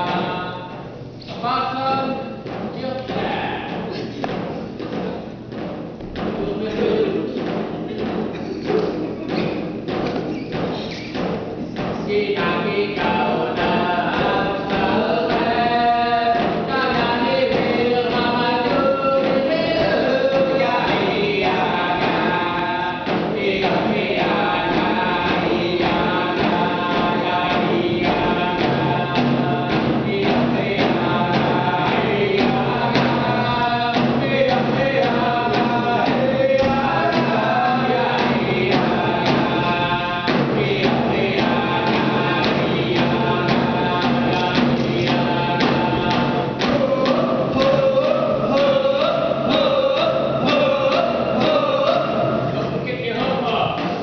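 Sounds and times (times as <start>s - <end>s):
group of voices singing: 0.0s - 1.0s, 6.5s - 54.0s
hand drum beating: 1.9s - 54.0s.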